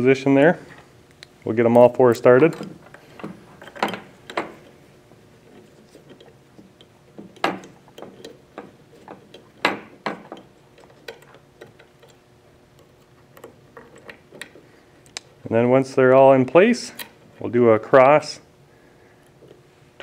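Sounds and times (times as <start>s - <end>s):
metal clicks of screws and wrench: 10.2s - 12.2s.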